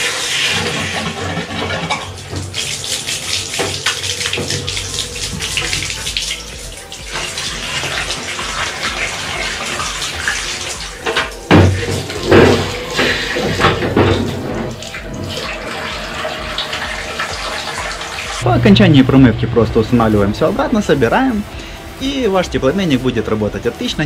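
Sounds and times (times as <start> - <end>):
water splashing into bathtub: 0.0 - 18.4.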